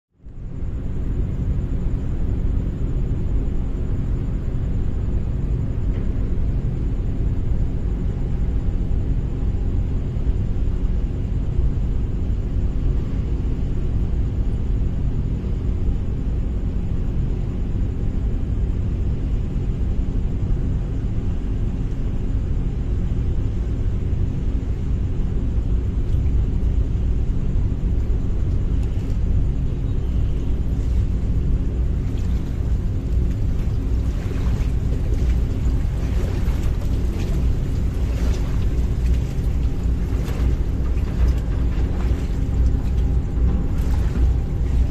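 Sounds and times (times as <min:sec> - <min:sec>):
ferry engines droning: 0:25.6 - 0:44.9.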